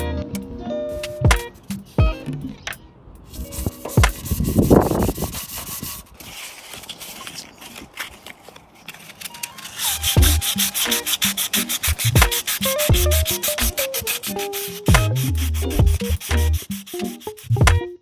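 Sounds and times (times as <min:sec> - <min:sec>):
music with steady beat: 0:00.0 - 0:02.5, 0:03.7 - 0:04.3, 0:12.0 - 0:18.0
sandpaper scratching painted frame: 0:03.3 - 0:17.8.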